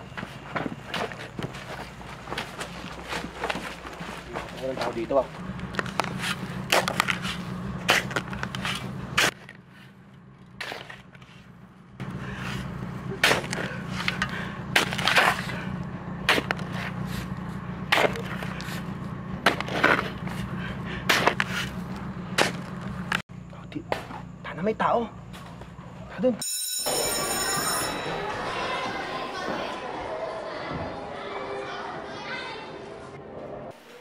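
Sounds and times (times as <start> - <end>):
digging tool striking gravelly ground: 0.1 - 9.7, 10.5 - 11.3, 12.4 - 23.2.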